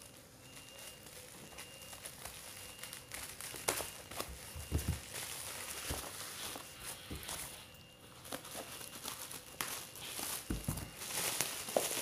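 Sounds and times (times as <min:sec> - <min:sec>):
sharp crackles: 0:00.0 - 0:07.6
plastic wrap crinkling: 0:00.0 - 0:12.0
parcel dull thuds: 0:04.5 - 0:05.0, 0:10.5 - 0:11.0.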